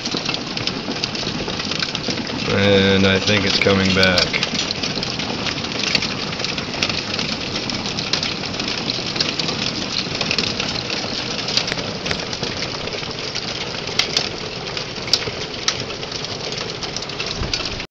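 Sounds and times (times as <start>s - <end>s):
hailstones clicking: 0.0s - 17.9s
rain and hail pattering: 0.0s - 17.9s.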